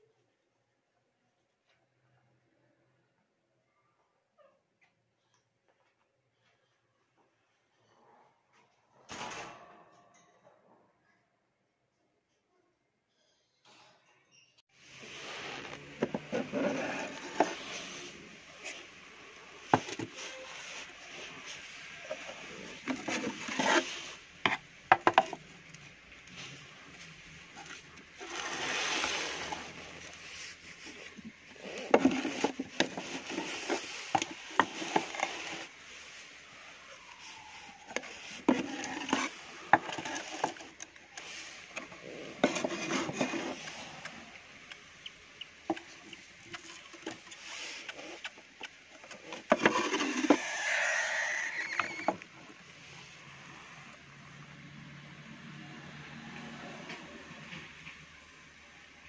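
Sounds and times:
drawers scraping: 14.9s - 18.9s, 19.6s - 25.4s, 27.6s - 35.8s, 37.9s - 44.1s, 49.1s - 52.2s.

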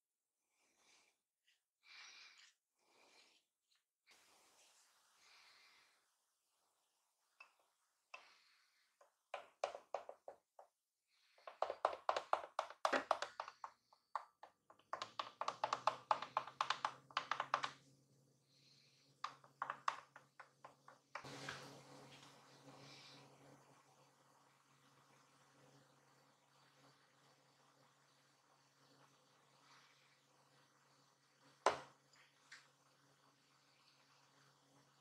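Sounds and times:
wooden stirrer ticking against glass: 11.5s - 17.8s.

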